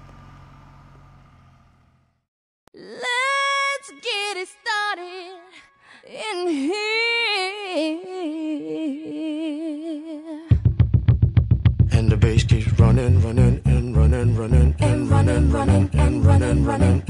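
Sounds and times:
solo singing with vibrato: 2.7s - 10.6s, 13.0s - 17.0s.

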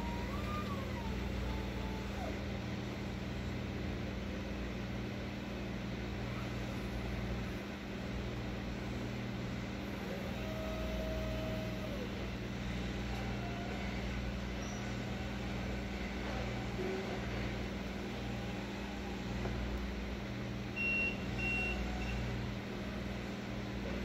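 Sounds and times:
electric truck low hum: 0.0s - 4.4s.

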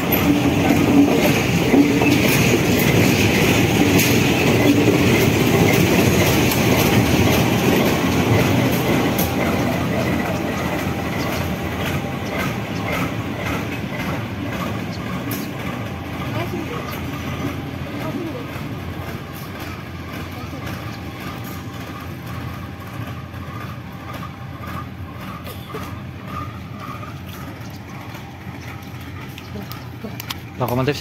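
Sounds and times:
train wheel clacks: 0.0s - 31.0s
train wheels rumbling on rail: 0.0s - 31.0s.

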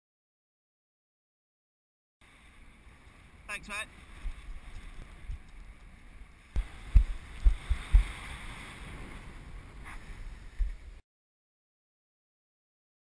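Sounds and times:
wind buffeting microphone: 2.3s - 11.0s.

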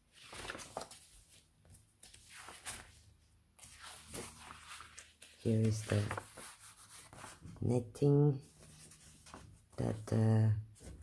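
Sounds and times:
stiff paper sheets rustling: 0.1s - 7.6s.

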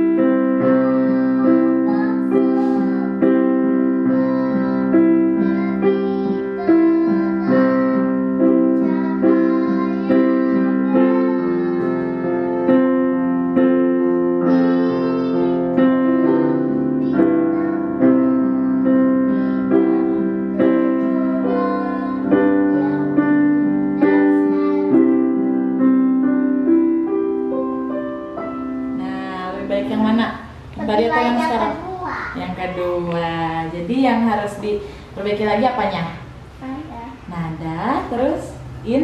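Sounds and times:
digital piano chords: 0.0s - 37.3s
girl singing vocal exercise: 0.6s - 3.4s, 4.0s - 12.8s, 14.4s - 23.4s.

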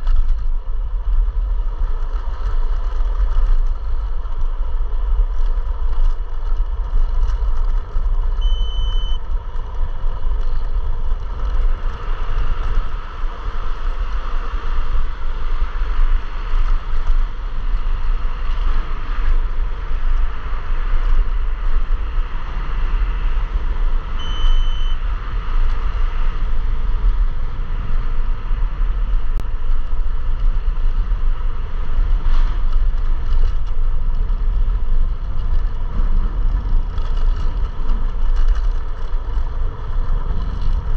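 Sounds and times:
scooter road and tyre noise: 0.0s - 40.9s
wind rushing over microphone: 0.0s - 40.9s
short high beep: 8.4s - 9.2s, 24.2s - 25.0s.

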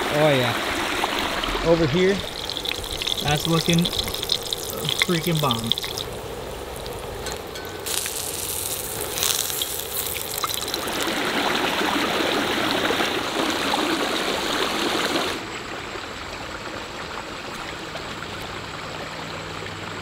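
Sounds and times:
creek rushing over rocks: 0.0s - 8.2s, 9.9s - 18.6s
creek babbling: 0.0s - 20.0s
fish sizzling in hot oil: 1.0s - 11.8s.

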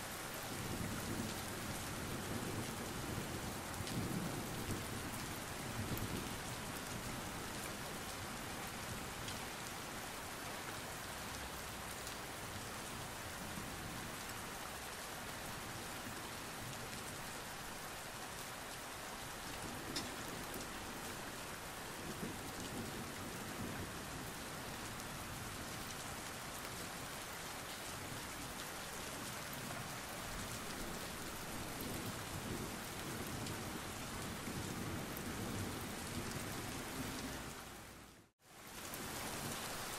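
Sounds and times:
steady rain: 0.0s - 39.9s
raindrop ticks: 19.5s - 20.7s.

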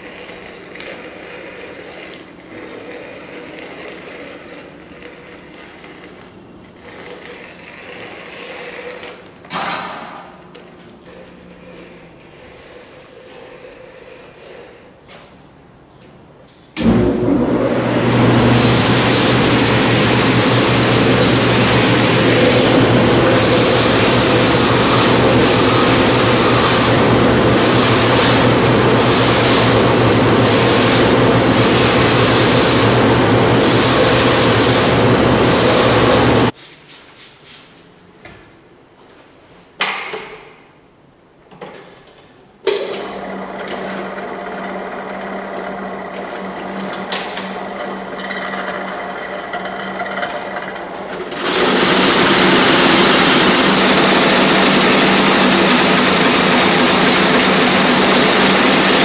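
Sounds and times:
shoe finishing machine running: 16.8s - 36.5s, 42.7s - 59.0s
stitching machine humming: 16.8s - 36.5s, 42.8s - 59.0s.

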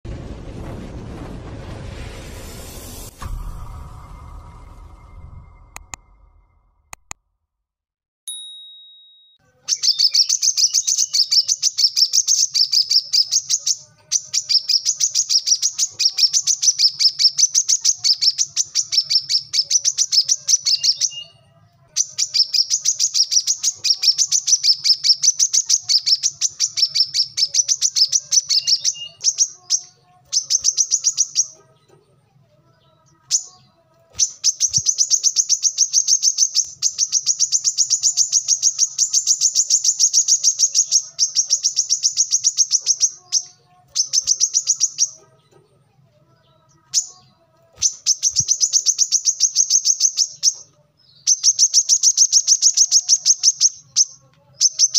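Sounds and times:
bird singing rapid high notes: 9.6s - 31.6s, 32.9s - 45.2s, 47.0s - 54.9s.

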